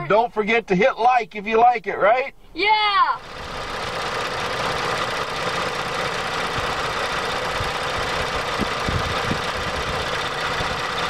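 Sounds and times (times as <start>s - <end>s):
car engine idling: 3.0s - 11.0s.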